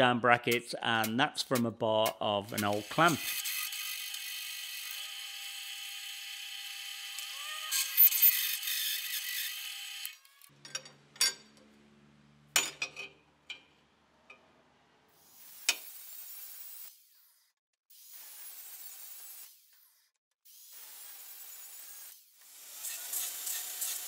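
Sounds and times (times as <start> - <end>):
angle grinder cutting steel: 2.0 - 10.5, 20.5 - 24.0.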